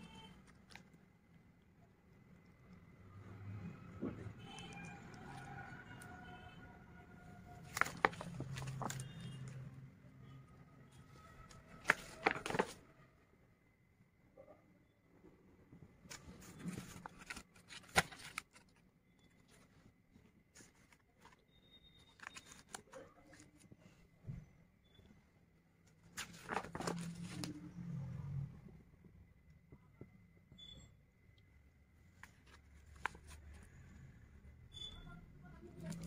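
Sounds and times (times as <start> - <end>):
paper rustling: 7.4 - 9.7, 10.9 - 12.9, 16.0 - 24.0, 25.8 - 27.7, 32.1 - 33.7, 35.6 - 36.0
paper ticking: 7.5 - 9.7, 11.4 - 12.8, 26.0 - 27.5.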